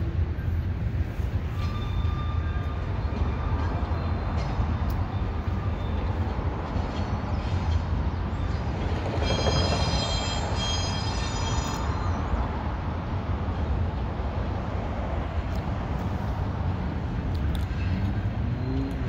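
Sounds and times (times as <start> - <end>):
train wheels rumbling on rail: 0.0 - 19.0
high-pitched metallic squeal: 1.2 - 6.2, 6.8 - 12.5.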